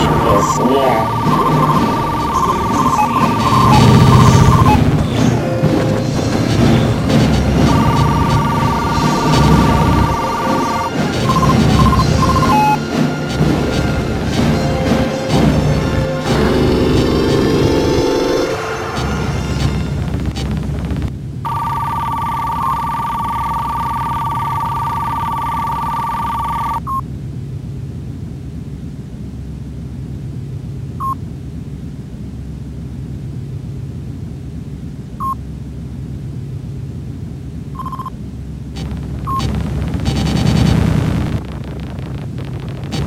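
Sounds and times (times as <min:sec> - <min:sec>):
short electronic beeps: 0:00.0 - 0:04.9, 0:07.6 - 0:12.8, 0:31.0 - 0:31.2, 0:35.2 - 0:35.4, 0:37.8 - 0:38.2, 0:38.8 - 0:39.5
two-note electronic tone: 0:00.0 - 0:04.9, 0:07.5 - 0:12.9
low electronic hum: 0:00.0 - 0:43.0.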